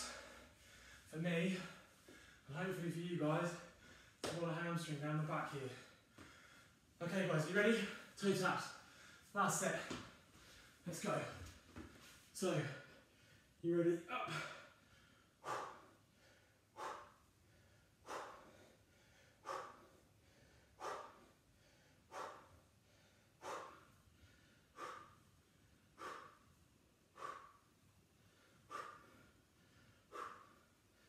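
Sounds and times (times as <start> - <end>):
man breathing out hard: 14.2 - 25.3, 25.9 - 31.0.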